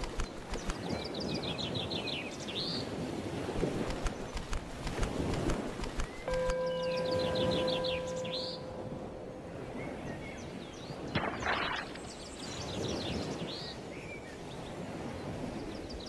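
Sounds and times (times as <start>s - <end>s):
surf wash: 0.0s - 16.0s
bird calls: 5.8s - 13.9s.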